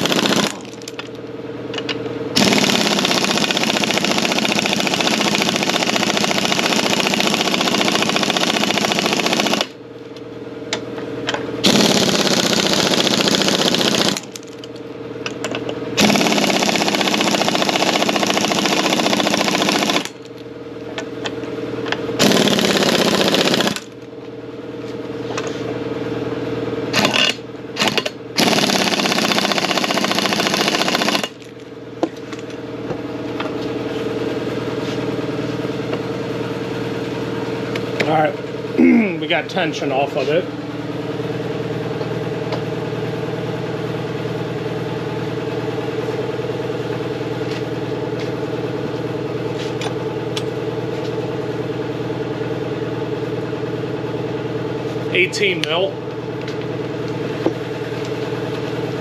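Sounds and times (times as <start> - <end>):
impact wrench hammering: 26.9 - 31.4.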